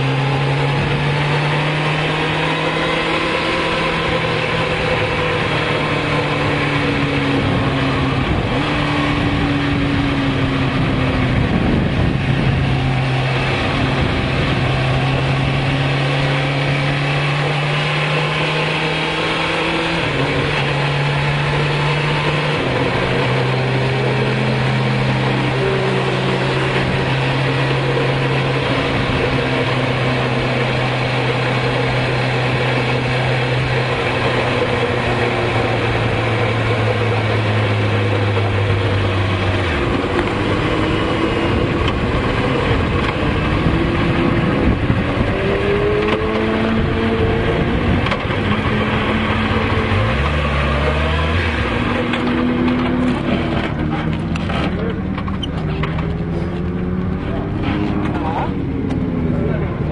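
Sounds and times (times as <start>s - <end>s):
motorcycle engine running: 0.0s - 59.9s
wind rushing: 6.6s - 16.9s.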